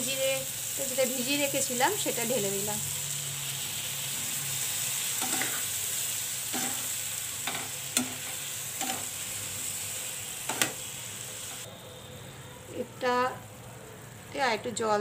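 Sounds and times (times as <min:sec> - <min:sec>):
sizzling in a frying pan: 0:00.0 - 0:15.0.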